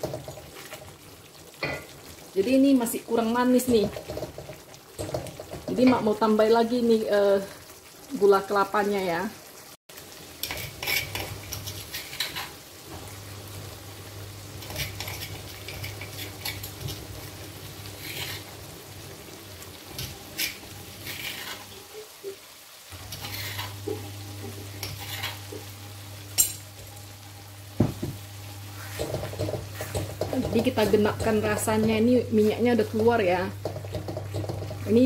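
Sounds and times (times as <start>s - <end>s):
paste sizzling in oil: 0.0s - 35.0s
utensil scraping and clinking: 20.0s - 21.7s, 23.0s - 24.0s, 24.7s - 25.6s.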